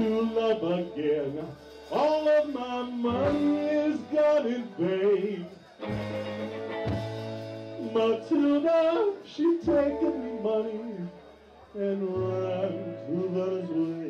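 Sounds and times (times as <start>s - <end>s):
man singing: 0.0s - 6.1s, 7.7s - 14.0s
bass line: 0.0s - 14.0s
electric guitar: 0.0s - 14.0s.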